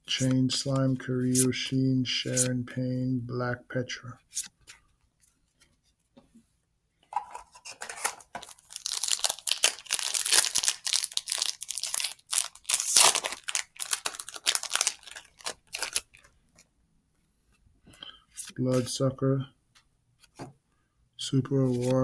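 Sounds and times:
foil wrapper tearing and crinkling: 8.0s - 16.3s.

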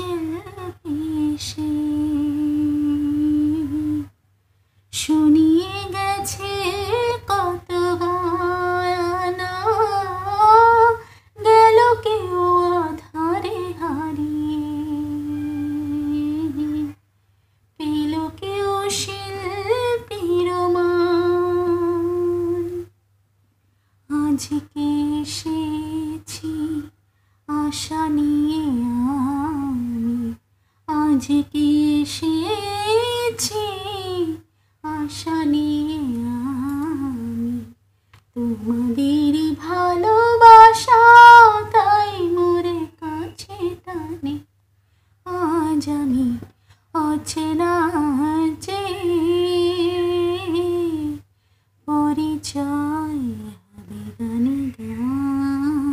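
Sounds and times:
woman singing unaccompanied: 0.0s - 4.2s, 4.9s - 17.0s, 17.8s - 23.0s, 24.1s - 44.5s, 45.3s - 55.9s.

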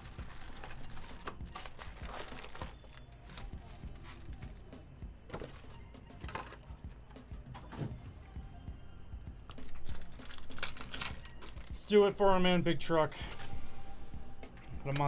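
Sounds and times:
foil packs crinkling: 0.0s - 4.7s, 9.5s - 12.4s
background music: 0.0s - 15.0s.

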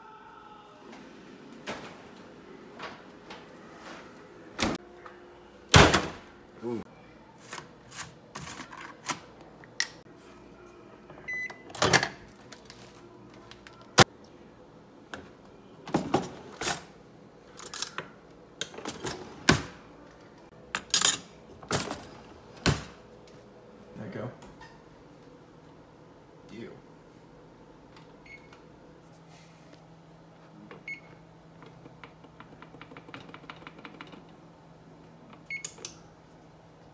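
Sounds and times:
microwave beep: 11.2s - 11.8s, 28.2s - 28.6s, 30.8s - 31.2s, 35.5s - 35.8s
drawer opening with cutlery rattling: 11.7s - 12.8s, 15.8s - 16.9s, 17.5s - 19.8s, 20.8s - 23.0s.

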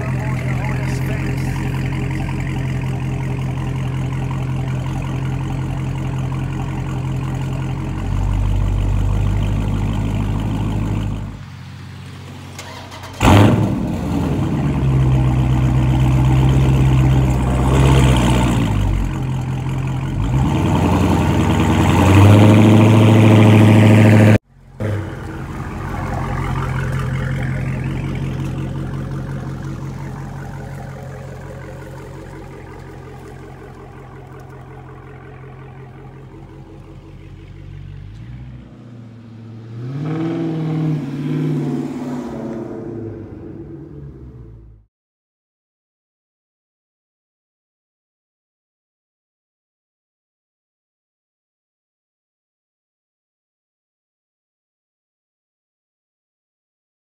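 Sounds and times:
car engine idling and revving: 0.0s - 44.9s.

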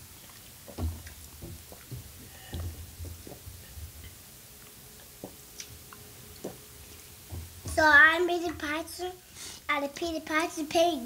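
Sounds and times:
dull low bumps: 0.6s - 4.1s.

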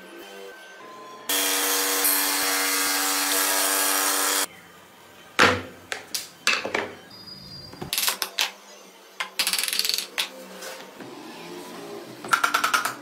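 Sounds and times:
power saw cutting wood: 1.3s - 4.5s.

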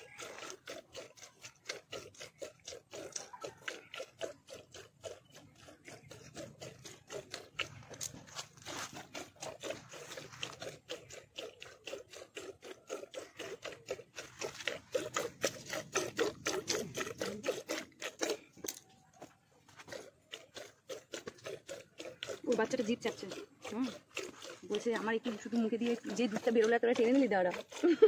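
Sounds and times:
milk squirting into metal pot: 0.0s - 28.0s.

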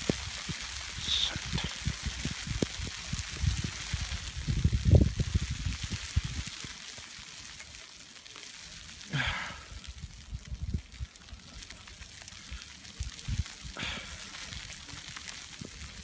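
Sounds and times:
wind buffeting microphone: 0.0s - 6.8s, 9.6s - 11.5s, 12.5s - 16.0s
steady hiss: 0.0s - 16.0s.

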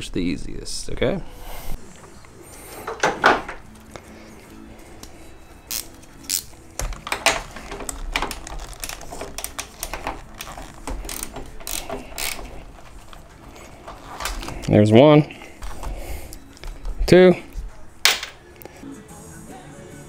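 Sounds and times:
ratcheting wrench clicking: 8.5s - 12.6s.

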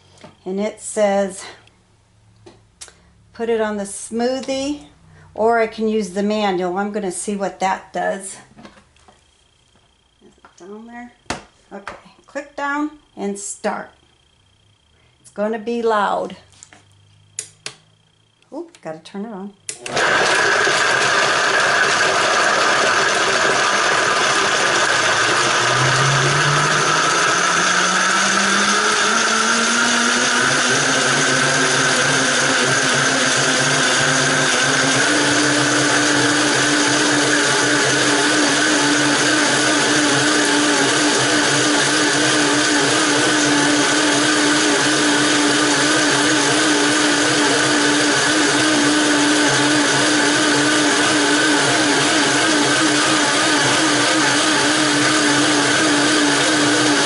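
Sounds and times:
blender whirring: 19.7s - 57.0s.

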